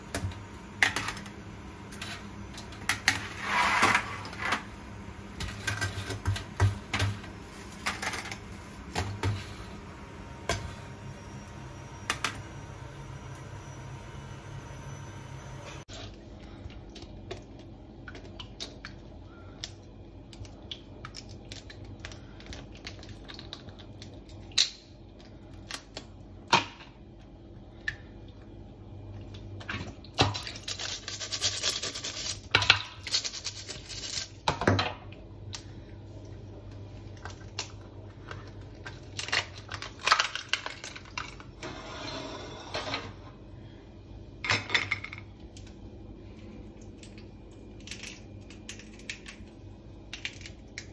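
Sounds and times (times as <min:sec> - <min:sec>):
crab shell cracking: 0:46.8 - 0:50.9.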